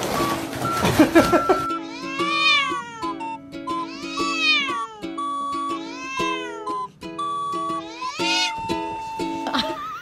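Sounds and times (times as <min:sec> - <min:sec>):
light background music: 0:00.1 - 0:10.0
cat yowling: 0:01.8 - 0:05.1, 0:05.8 - 0:06.8, 0:07.8 - 0:09.1.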